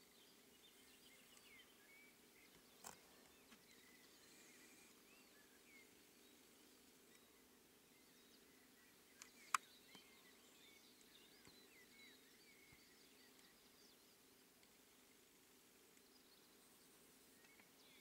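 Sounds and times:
faint bird chirps: 0.0 - 18.0
low steady hum: 0.0 - 18.0
sharp clicks: 9.2 - 10.0.

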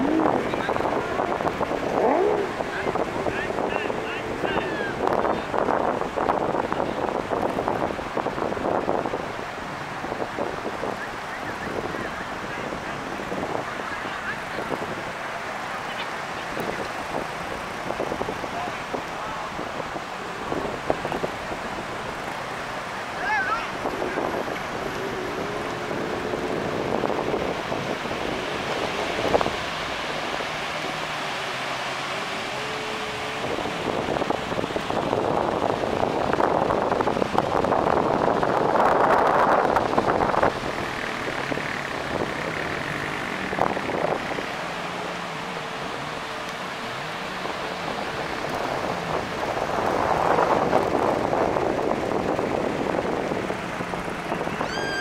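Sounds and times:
high rising and falling tone: 0.0 - 0.6, 54.3 - 55.0
breaking surf: 0.0 - 55.0
wind on microphone: 0.0 - 55.0.

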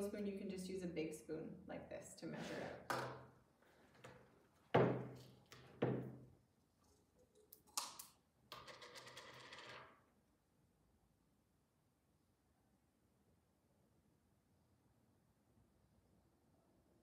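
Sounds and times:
utensils knocking on wooden table: 4.8 - 6.2.

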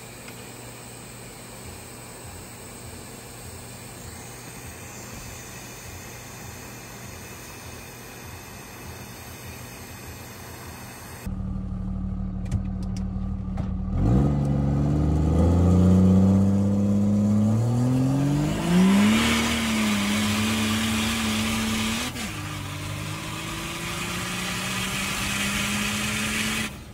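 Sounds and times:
diesel engine accelerating: 11.2 - 26.9.

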